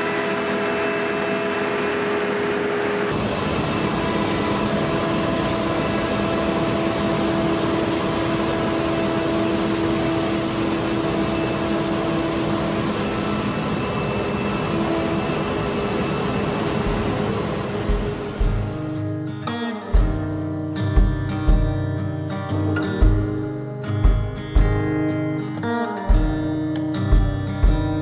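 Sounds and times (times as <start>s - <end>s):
planer and dust collector running: 0.0s - 19.0s.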